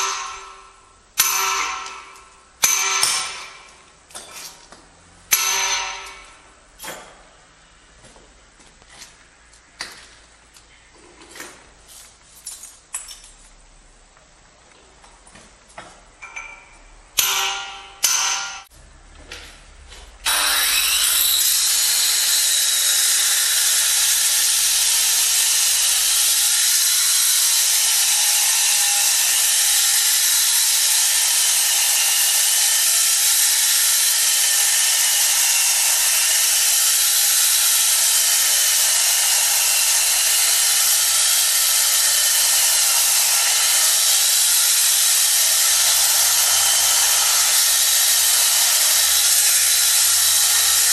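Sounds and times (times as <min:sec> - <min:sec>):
power tool whining on marble: 0:20.2 - 0:50.9.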